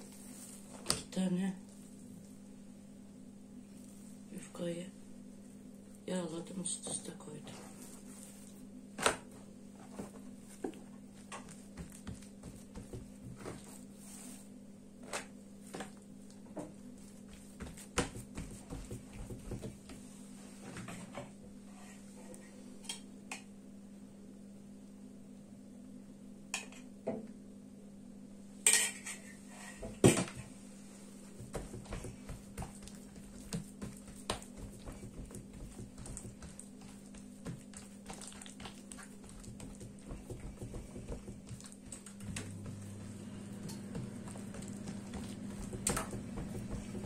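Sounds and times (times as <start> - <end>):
low hum: 42.1 - 47.0.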